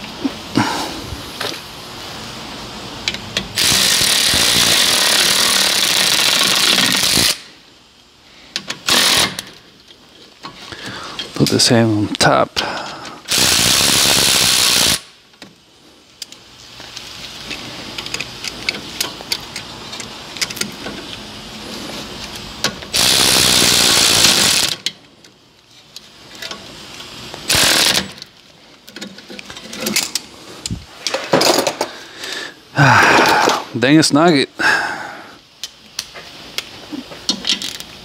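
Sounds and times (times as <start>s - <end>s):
impact wrench running: 3.5s - 7.5s, 8.7s - 9.6s, 13.3s - 15.2s, 22.8s - 24.8s, 27.4s - 28.2s.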